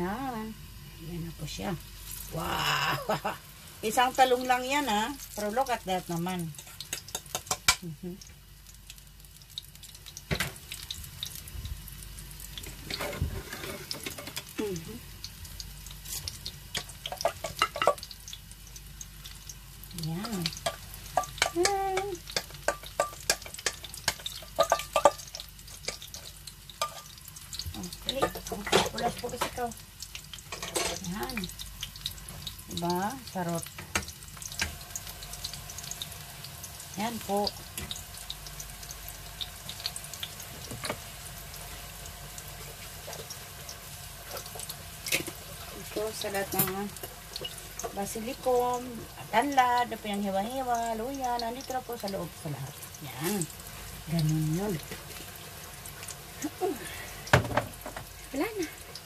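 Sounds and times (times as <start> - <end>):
omelette sizzling in frying pan: 0.0 - 59.0
oil crackling and popping: 1.9 - 59.0
utensil scraping pan: 12.8 - 14.4.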